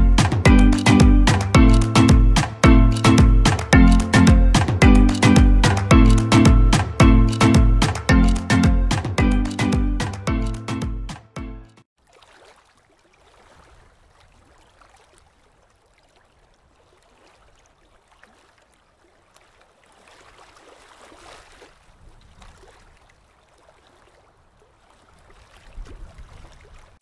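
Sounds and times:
river water lapping over rocks: 0:12.0 - 0:27.0.

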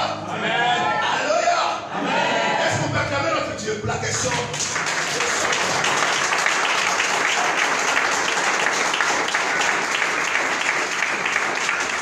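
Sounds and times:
crowd clapping: 0:04.0 - 0:12.0.

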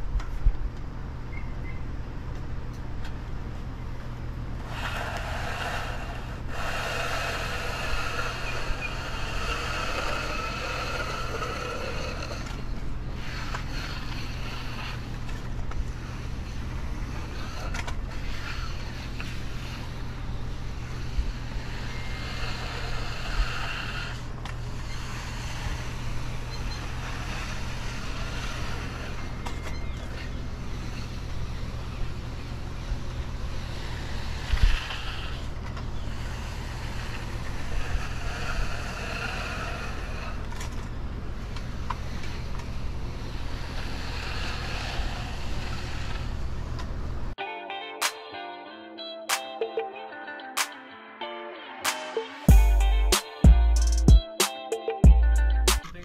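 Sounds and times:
float scraping wet concrete: 0:04.6 - 0:46.6
low engine hum: 0:55.1 - 0:56.0.

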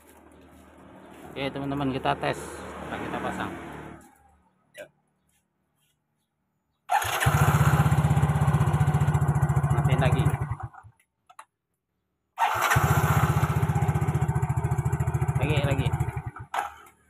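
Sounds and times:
electric starter cranking: 0:06.9 - 0:08.2, 0:12.4 - 0:13.7
scooter engine running: 0:06.9 - 0:10.8, 0:12.4 - 0:16.8.

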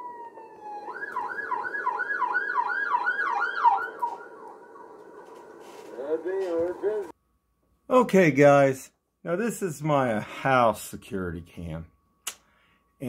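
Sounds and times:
police siren wailing and yelping: 0:00.0 - 0:07.1.

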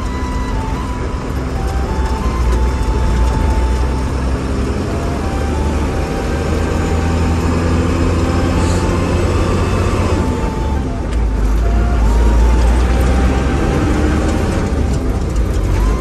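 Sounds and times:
bus engine rumbling: 0:00.0 - 0:16.0.

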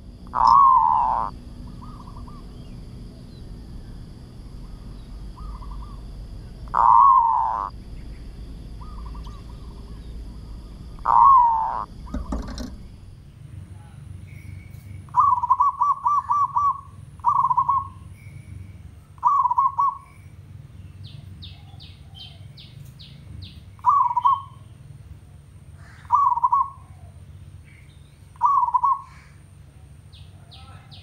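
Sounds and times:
dove cooing: 0:00.0 - 0:03.4, 0:04.6 - 0:07.8, 0:08.8 - 0:12.9, 0:15.1 - 0:18.0, 0:19.2 - 0:20.1, 0:23.8 - 0:24.6, 0:25.8 - 0:27.2, 0:28.4 - 0:29.9
low steady rumble: 0:00.0 - 0:31.0.

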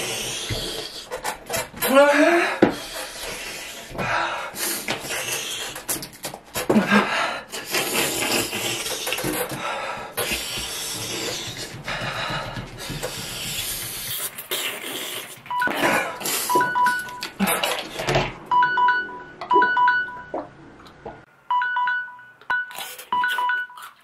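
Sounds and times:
person panting and hissing: 0:00.0 - 0:01.2, 0:02.2 - 0:06.0, 0:06.8 - 0:16.5
person moaning: 0:01.9 - 0:02.6
phone timer alarm beeping: 0:15.5 - 0:17.3, 0:18.5 - 0:20.4, 0:21.5 - 0:24.0.

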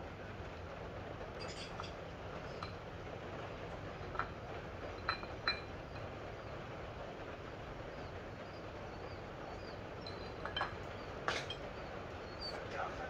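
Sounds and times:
steady low hum: 0:00.0 - 0:13.0
metallic clinks of tools: 0:10.0 - 0:11.8.

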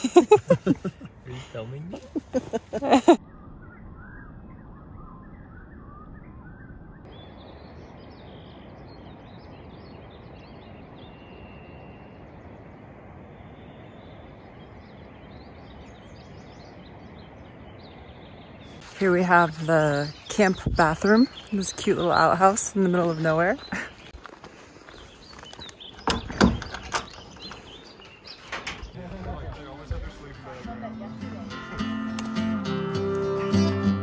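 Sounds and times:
steady outdoor hiss: 0:00.0 - 0:03.2, 0:07.1 - 0:34.0
faint bird chirps: 0:03.1 - 0:31.8.

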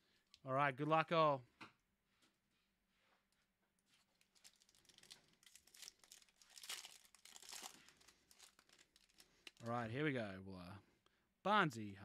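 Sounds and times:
foil wrapper crinkling: 0:04.1 - 0:09.7.

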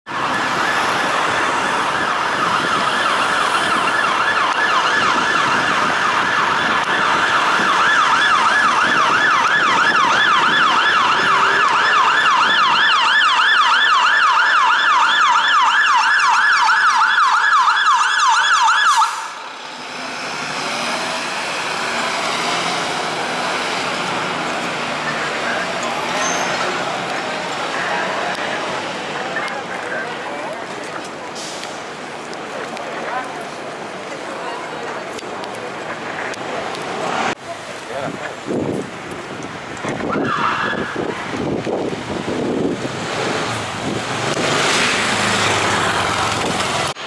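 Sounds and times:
street traffic: 0:00.0 - 0:47.0
fire engine siren yelping: 0:00.1 - 0:19.6, 0:39.8 - 0:43.0.

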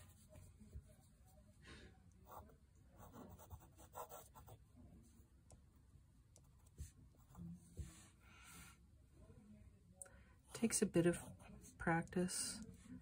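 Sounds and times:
pen nib scratching paper: 0:03.0 - 0:04.5.

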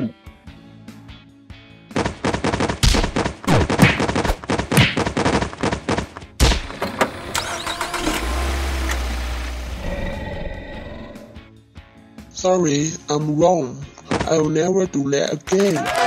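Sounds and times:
sharp crackling bangs: 0:01.9 - 0:06.9.

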